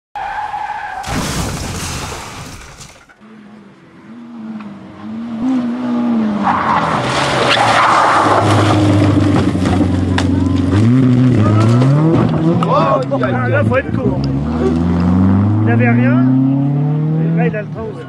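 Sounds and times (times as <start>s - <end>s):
tyres sliding on gravel: 0.3s - 3.2s, 6.4s - 12.1s
crash-like sound effect: 1.0s - 3.2s
rally car engine revving: 3.2s - 18.0s.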